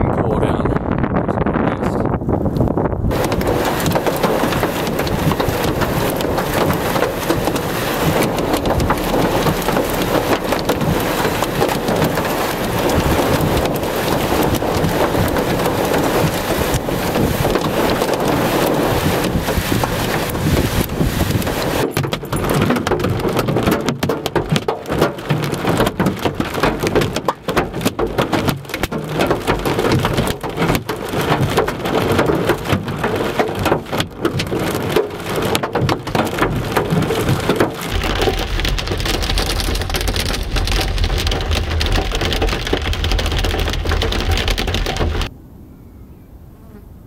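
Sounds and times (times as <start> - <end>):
heavy rain on car roof: 3.1 - 45.3
low rumble: 37.9 - 45.3.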